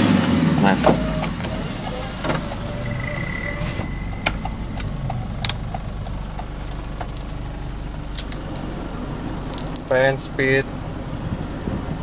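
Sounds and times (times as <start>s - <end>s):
diesel engine idling: 0.0s - 12.0s
thin whine: 1.1s - 8.7s.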